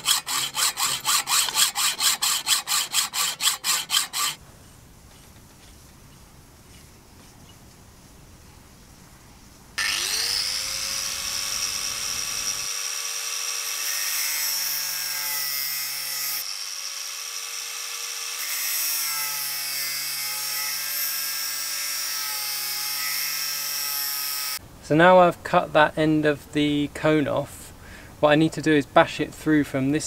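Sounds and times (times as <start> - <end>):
angle grinder cutting metal: 0.0 - 4.4, 9.8 - 24.6.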